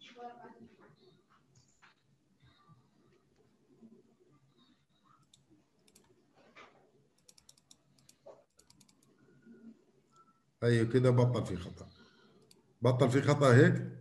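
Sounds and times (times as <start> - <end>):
mouse clicks: 5.2 - 6.2, 7.2 - 9.2
computer keyboard key presses: 7.2 - 9.1.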